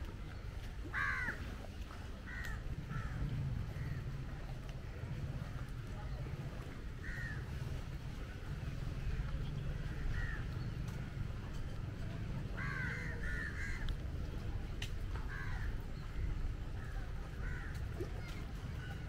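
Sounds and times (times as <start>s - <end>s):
crows cawing: 0.9s - 1.4s, 7.0s - 7.5s, 9.9s - 10.5s, 12.6s - 13.8s
low rumble: 2.4s - 12.6s.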